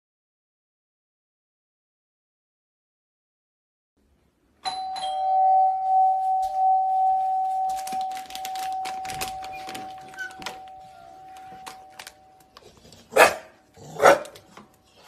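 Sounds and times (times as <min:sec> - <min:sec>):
doorbell ding-dong chime: 0:04.6 - 0:12.6.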